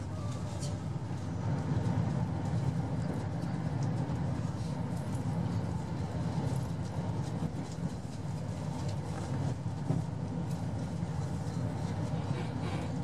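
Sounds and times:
train engine and wheels rumbling: 0.0 - 13.0.

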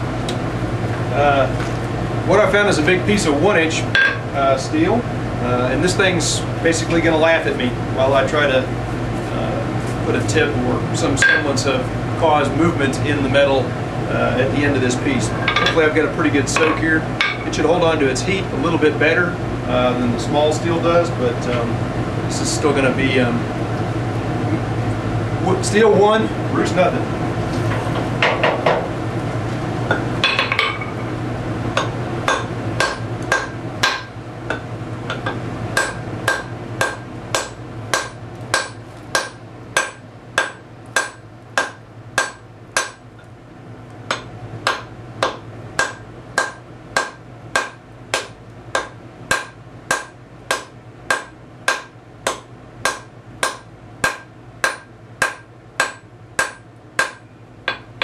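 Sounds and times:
steady low hum: 0.0 - 58.0
hammer striking steel on anvil: 31.8 - 43.0, 44.1 - 57.9.

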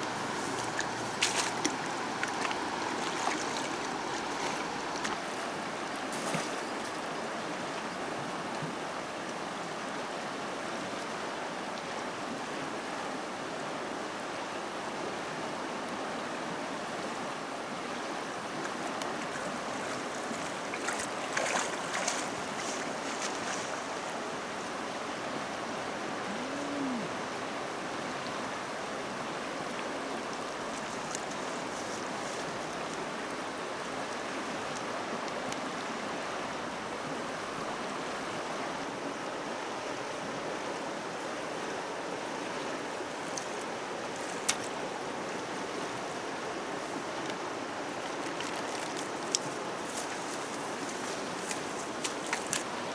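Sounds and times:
river rushing: 0.0 - 52.9
net splashing in water: 20.4 - 22.3.

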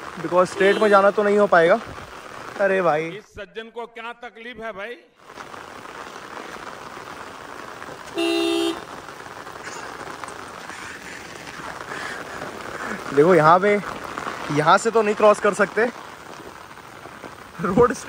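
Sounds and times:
steady rain: 0.0 - 3.2, 5.2 - 18.0
vehicle horn honking: 0.6 - 1.1, 8.1 - 8.9.

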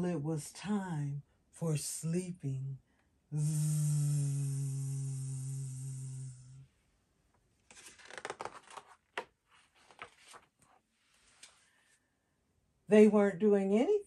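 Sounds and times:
woman humming low note: 3.4 - 6.6
paper pages turning: 7.6 - 11.6.

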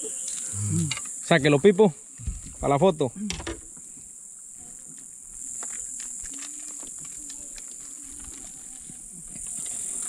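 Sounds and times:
high-pitched insect chorus: 0.0 - 10.0.

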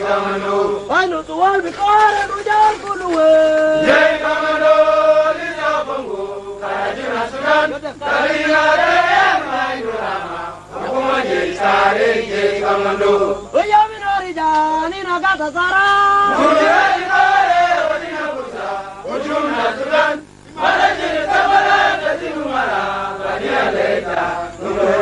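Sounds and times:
soldiers chanting a song: 0.0 - 0.9, 3.7 - 13.5, 16.2 - 25.0.

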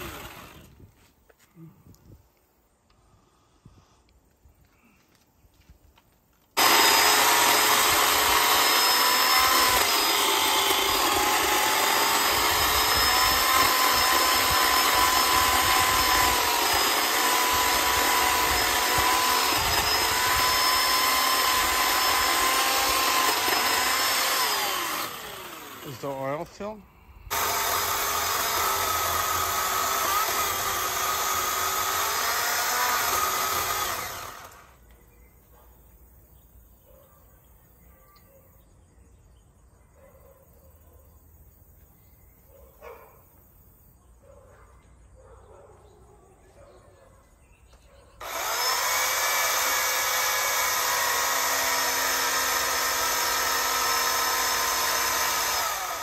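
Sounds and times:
electric chainsaw cutting wood: 0.0 - 0.8, 6.5 - 34.9, 48.2 - 56.0.

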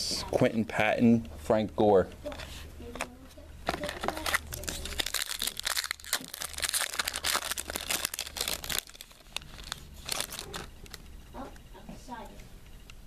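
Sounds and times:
foil wrapper crinkling: 3.7 - 11.0.

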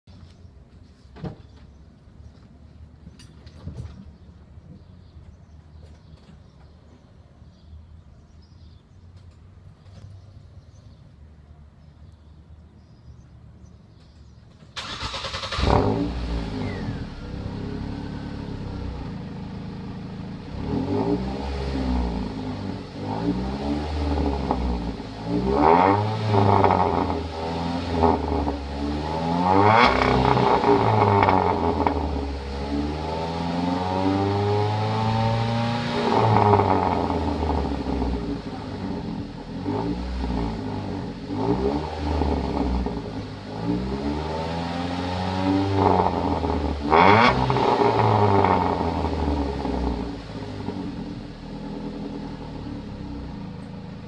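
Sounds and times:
car engine revving and idling: 14.8 - 54.0.

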